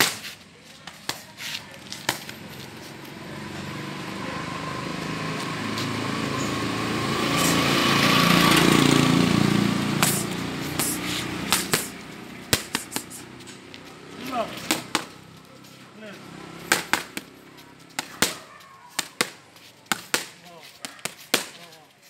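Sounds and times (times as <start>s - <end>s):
boxing gloves hitting mitts: 0.0s - 2.4s, 10.0s - 13.2s, 14.3s - 15.2s, 16.7s - 21.8s
vehicle engine passing by: 1.6s - 20.7s.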